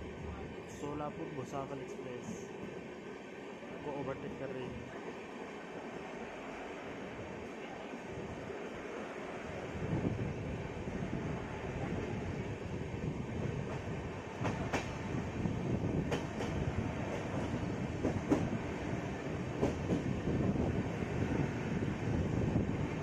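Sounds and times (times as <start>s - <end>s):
train rumbling on rails: 0.0s - 23.0s
train wheel clicks: 13.7s - 15.0s, 16.0s - 18.5s, 19.6s - 20.1s.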